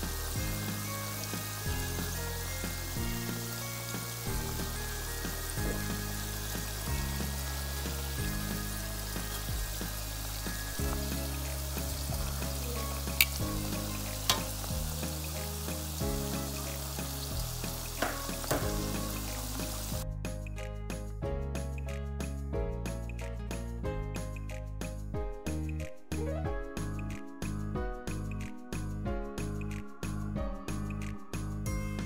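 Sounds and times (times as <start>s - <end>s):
oil sizzling: 0.0s - 20.0s
spatula knocking against pan: 18.0s - 18.9s.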